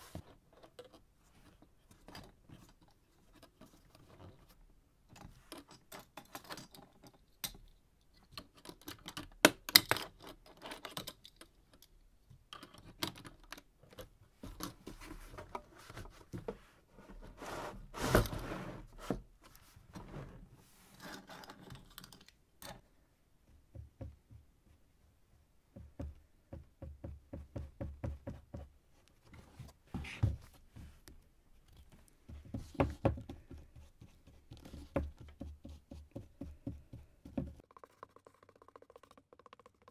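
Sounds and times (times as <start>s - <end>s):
taps and knocks on cardboard: 23.6s - 24.5s, 25.7s - 28.7s, 32.3s - 37.6s.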